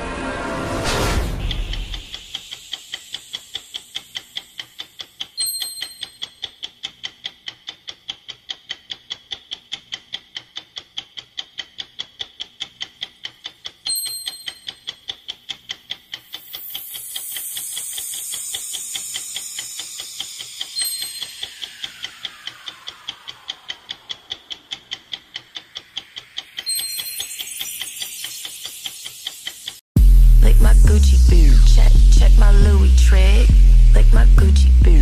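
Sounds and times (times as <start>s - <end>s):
clock ticking: 1.3s - 29.8s
bright chime: 5.4s - 6.4s, 13.9s - 14.9s, 16.8s - 22.5s, 26.4s - 29.6s.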